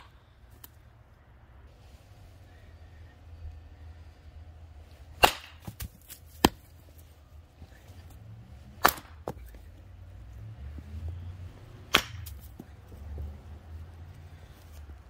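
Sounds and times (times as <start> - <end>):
hatchet chopping wood: 5.2 - 6.7, 8.8 - 9.6, 11.9 - 12.6.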